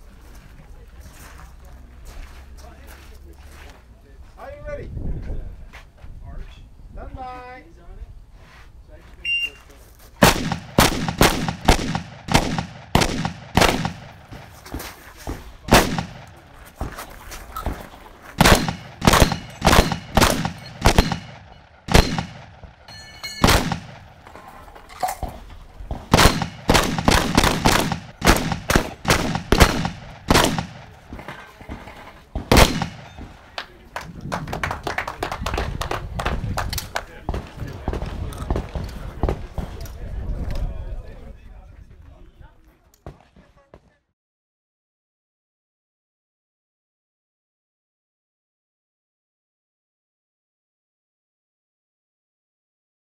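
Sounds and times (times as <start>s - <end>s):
shotgun shots: 10.2s - 14.7s, 15.6s - 16.4s, 18.4s - 24.2s, 25.9s - 33.4s.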